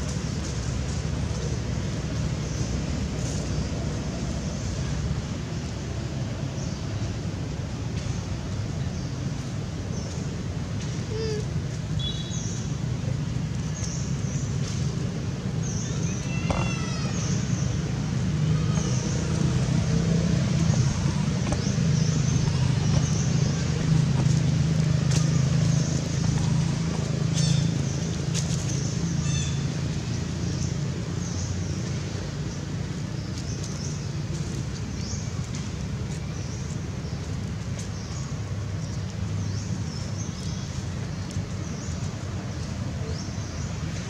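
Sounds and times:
low engine-like hum: 0:00.0 - 0:44.0.

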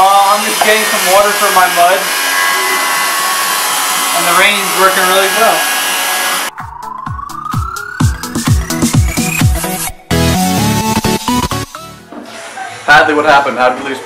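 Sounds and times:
music with a beat: 0:06.5 - 0:12.1.

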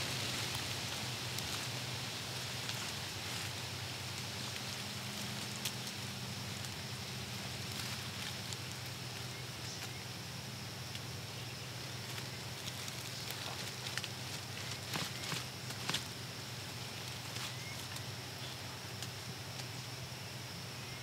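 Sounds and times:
high hiss: 0:00.0 - 0:21.0
faint ticks: 0:04.1 - 0:06.8, 0:10.8 - 0:11.2, 0:17.0 - 0:19.9.

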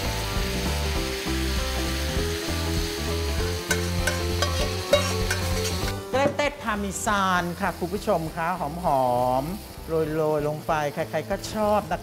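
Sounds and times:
background music: 0:00.0 - 0:12.0
sauce sizzling in a hot pan: 0:00.0 - 0:12.0.

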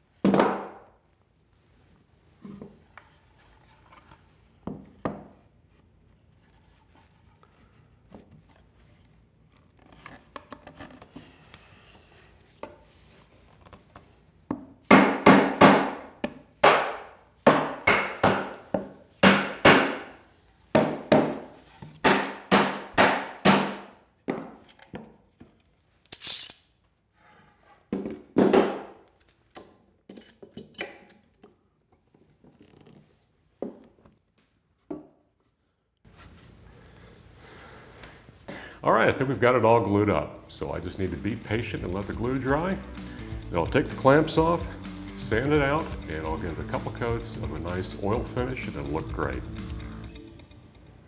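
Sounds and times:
mallet knocking wood: 0:14.9 - 0:20.1, 0:20.7 - 0:24.5.

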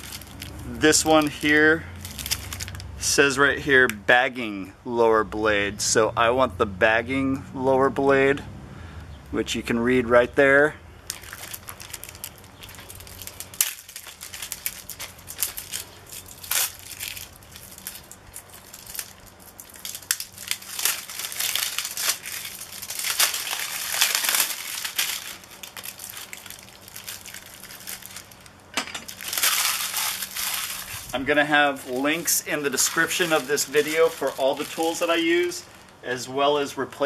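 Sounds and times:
plastic bag crinkling: 0:00.0 - 0:03.0, 0:11.0 - 0:36.0.

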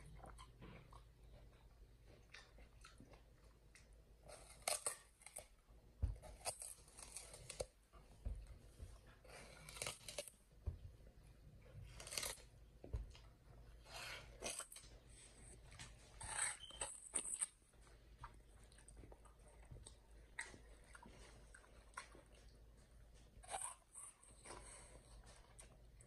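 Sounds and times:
chimpanzee chewing watermelon: 0:00.0 - 0:16.8.

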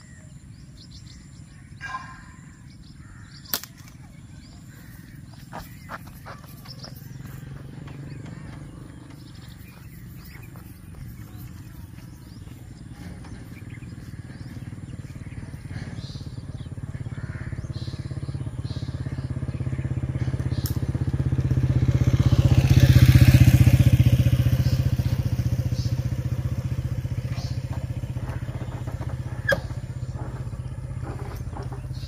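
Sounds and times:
motorcycle passing by: 0:00.0 - 0:03.4, 0:04.0 - 0:32.0
sharp click: 0:03.4 - 0:04.1.

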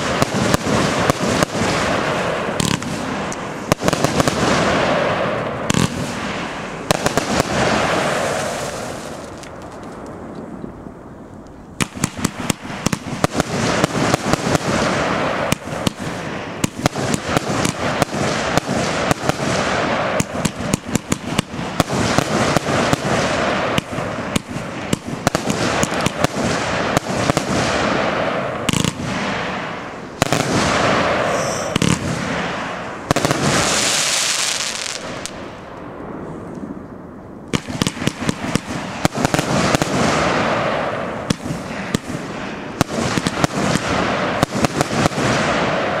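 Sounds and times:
firework battery firing: 0:00.0 - 0:10.3, 0:11.8 - 0:36.3, 0:37.5 - 0:46.0.

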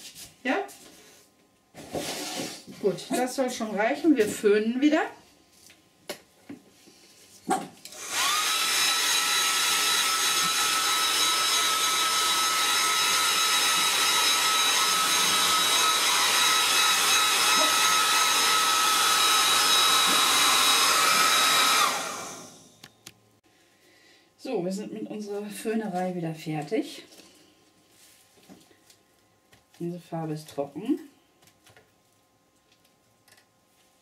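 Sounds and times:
hair dryer running: 0:07.8 - 0:22.9.

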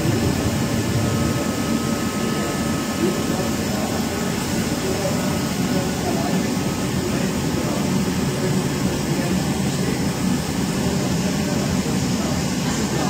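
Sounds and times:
grinding machine running: 0:00.0 - 0:13.0.

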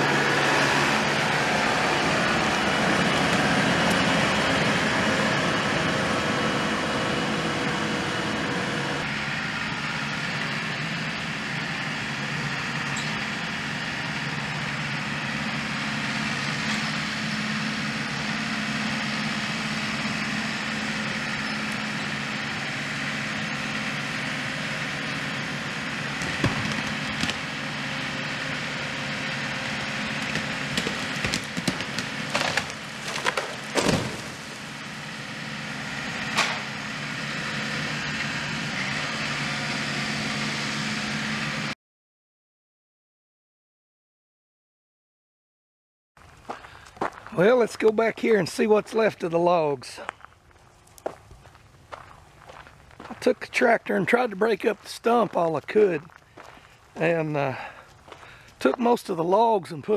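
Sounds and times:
tractor engine running: 0:00.0 - 0:41.8, 0:46.2 - 0:59.9
tree trunk crashing down: 0:26.0 - 0:27.7, 0:29.7 - 0:34.8
wood cracking and snapping: 0:26.1 - 0:27.5, 0:30.1 - 0:34.7.

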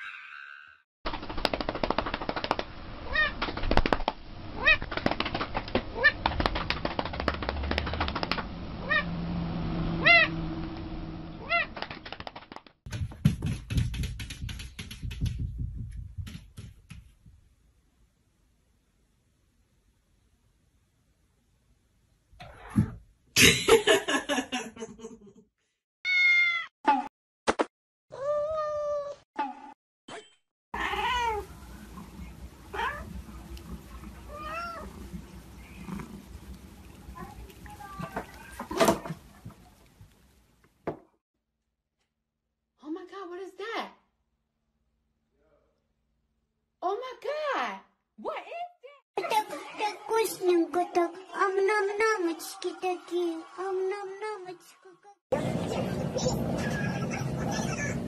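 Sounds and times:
cat meowing: 0:10.0 - 0:10.4, 0:11.4 - 0:11.8, 0:26.1 - 0:26.7, 0:30.8 - 0:31.5, 0:34.3 - 0:35.0.

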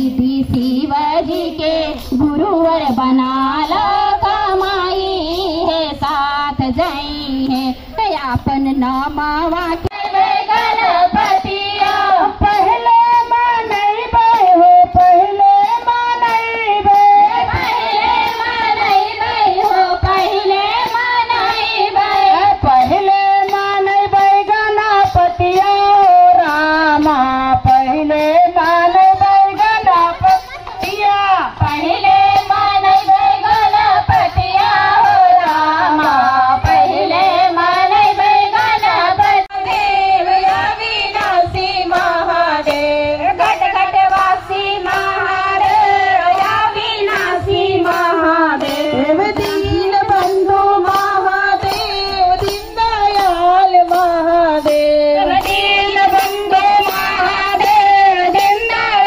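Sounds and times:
women singing devotional song: 0:00.0 - 0:59.0
hand claps: 0:37.7 - 0:59.0.

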